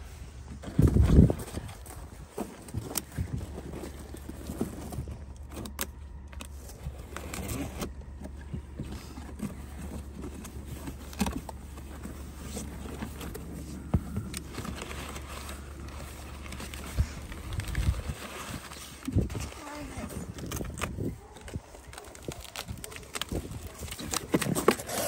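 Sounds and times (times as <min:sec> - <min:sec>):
packing paper rustling: 0:00.0 - 0:25.0
knife slitting packing tape: 0:22.3 - 0:25.0.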